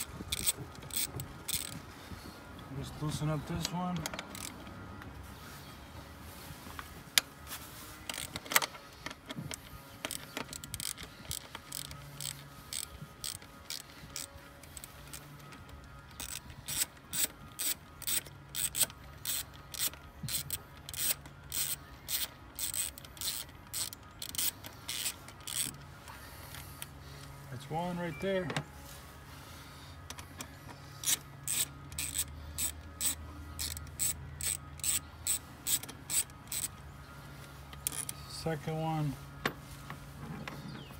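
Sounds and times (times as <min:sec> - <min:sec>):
ratchet wrench clicking: 0:00.0 - 0:01.8, 0:03.6 - 0:04.7, 0:08.0 - 0:08.7, 0:09.3 - 0:25.8, 0:31.0 - 0:36.8, 0:37.8 - 0:38.2.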